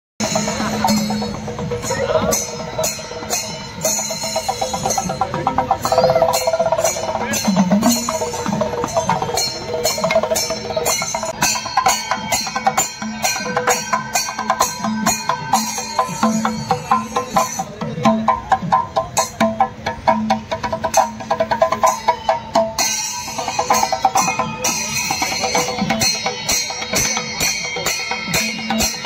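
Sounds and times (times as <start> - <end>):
drum strikes: 0.2 - 29.0
cymbal clashes: 20.9 - 29.0.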